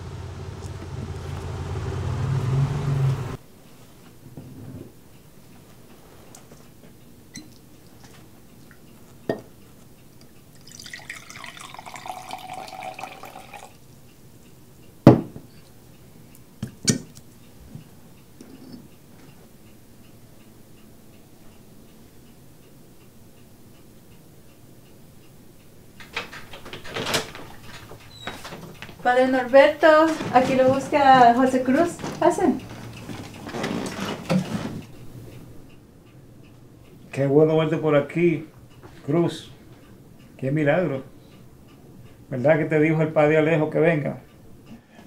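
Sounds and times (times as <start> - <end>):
drink poured into a glass: 10.6 - 13.8
glass set down on wooden table: 15.1 - 15.5
soft knock: 15.1 - 15.5.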